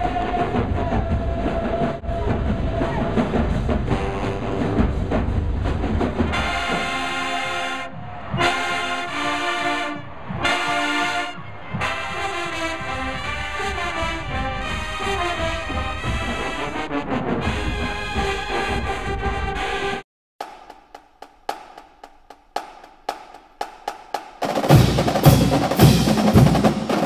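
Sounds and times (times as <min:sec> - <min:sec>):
brass band playing chords: 0:03.2 - 0:20.0, 0:24.5 - 0:27.0.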